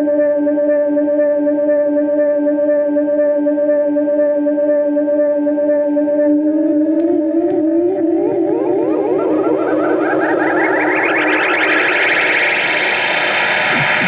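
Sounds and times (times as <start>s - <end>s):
ambient electric guitar drone: 0.0s - 14.0s
upward-sliding pitch sweeps: 5.9s - 14.0s.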